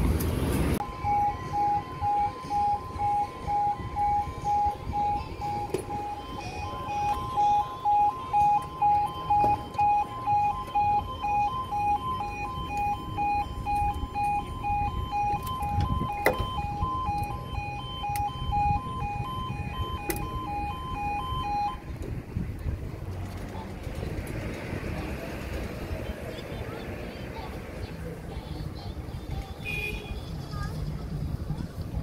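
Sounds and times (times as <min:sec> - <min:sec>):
two-tone crossing alarm: 0:00.8 - 0:21.9.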